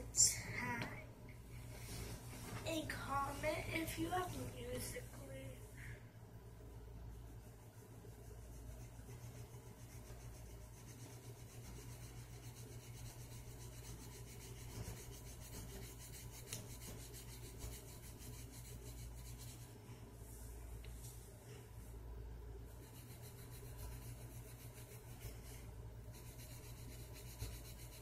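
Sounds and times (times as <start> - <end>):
pencil scribbling on paper: 7.1 - 19.8, 22.7 - 28.0.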